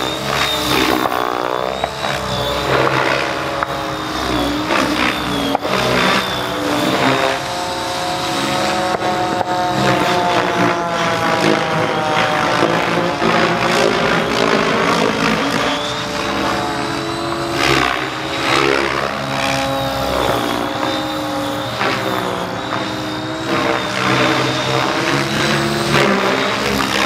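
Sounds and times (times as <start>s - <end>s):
rc helicopter rotor whine: 0.0s - 27.0s.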